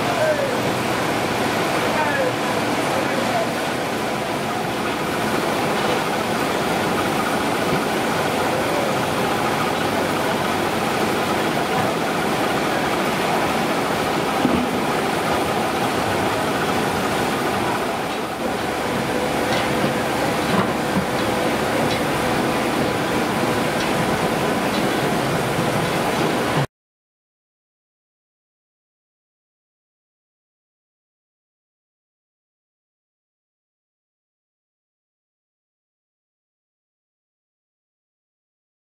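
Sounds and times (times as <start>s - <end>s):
winding machines clattering: 0.0s - 26.7s.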